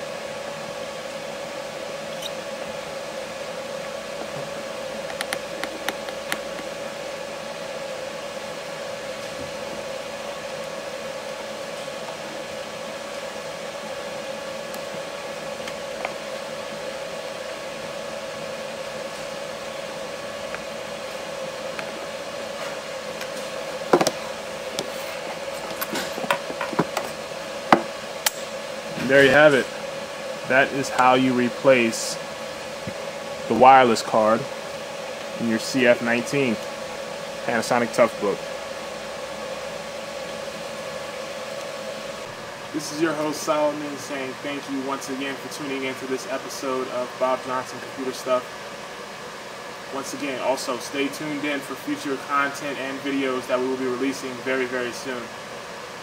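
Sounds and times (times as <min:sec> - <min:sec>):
room hum: 0:00.0 - 0:56.0
laptop knocking on table: 0:23.9 - 0:24.2.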